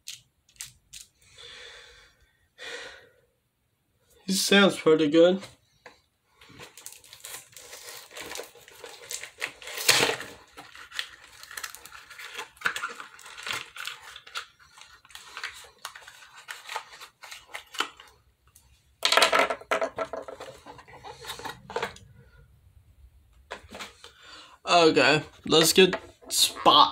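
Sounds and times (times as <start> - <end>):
packaging rustling and crackling: 6.6 - 18.2.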